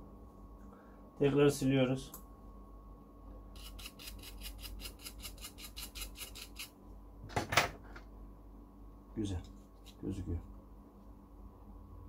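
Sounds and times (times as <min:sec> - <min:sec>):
scratchy scrubbing of circuit board: 0:03.6 - 0:06.7.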